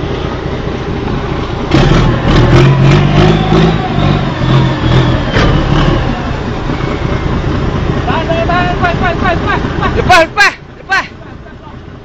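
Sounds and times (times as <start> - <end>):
boat engine running: 0.0 - 12.0.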